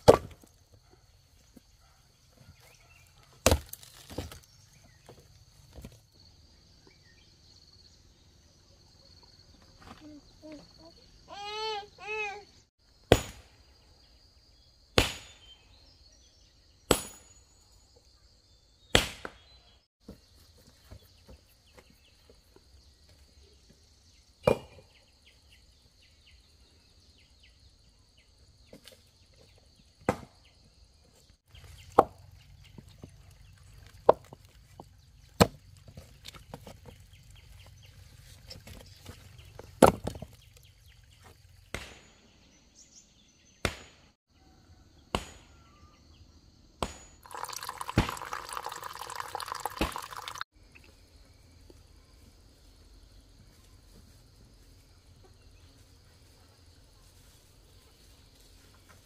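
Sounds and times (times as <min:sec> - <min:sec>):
chopping wood: 0:00.0 - 0:00.5, 0:03.3 - 0:04.5, 0:13.1 - 0:13.5, 0:15.0 - 0:15.5, 0:16.9 - 0:17.3, 0:18.9 - 0:19.4, 0:24.4 - 0:24.8, 0:30.0 - 0:30.4, 0:32.0 - 0:32.2, 0:35.4 - 0:35.6, 0:39.8 - 0:40.4, 0:41.6 - 0:42.2, 0:43.6 - 0:44.0, 0:45.1 - 0:45.6, 0:46.8 - 0:47.2.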